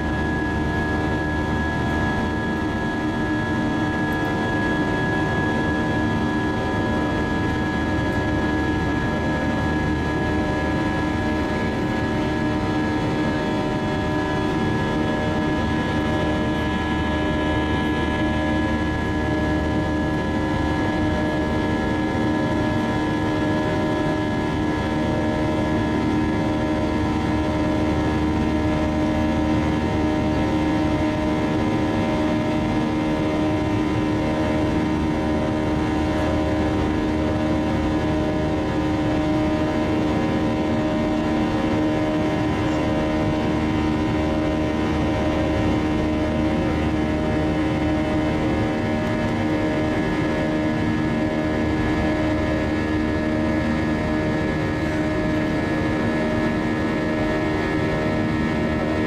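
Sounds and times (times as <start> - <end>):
jet engine drone in cabin: 0.0 - 59.0.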